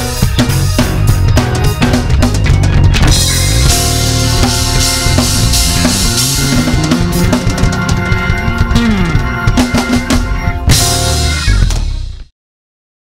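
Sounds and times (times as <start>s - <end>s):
gospel band playing: 0.0s - 11.8s
drum fills: 0.0s - 12.3s
low note sliding down: 3.2s - 10.2s.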